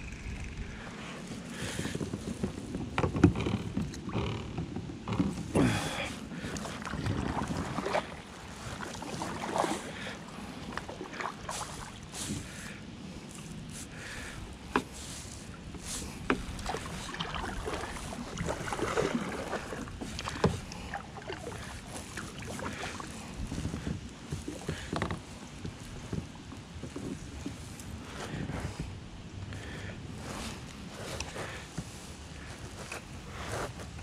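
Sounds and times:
kayak paddle splashing water: 5.2s - 28.8s.

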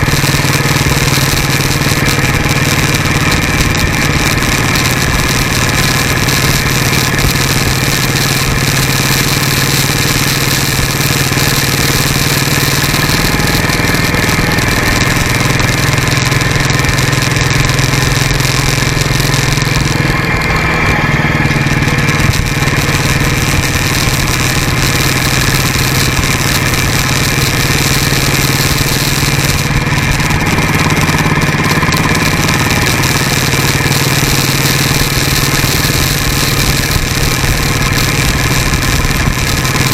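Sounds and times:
motorcycle engine running: 0.0s - 39.9s
road noise: 0.0s - 39.9s.

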